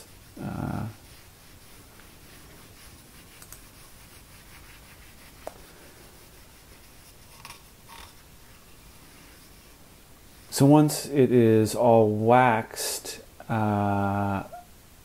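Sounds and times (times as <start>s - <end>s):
cloth rubbing wood: 0.0s - 10.6s.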